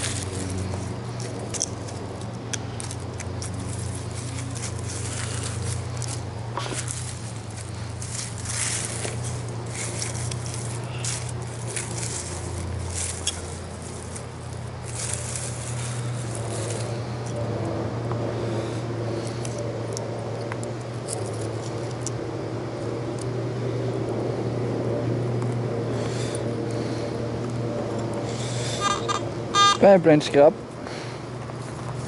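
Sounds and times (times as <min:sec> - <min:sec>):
footsteps in dry leaves: 0:00.0 - 0:17.4
small crackles and clicks: 0:00.0 - 0:17.4
steady low hum: 0:00.0 - 0:32.0.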